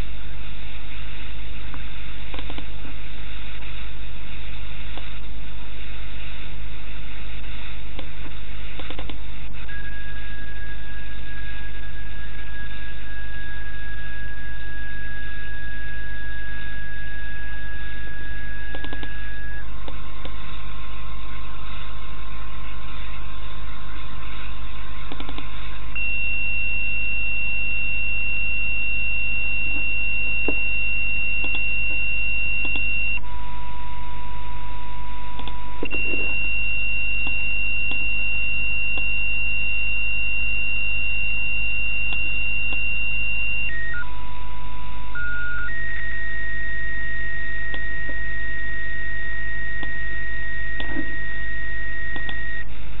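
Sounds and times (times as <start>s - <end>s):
radio hiss and hum: 0.0s - 53.0s.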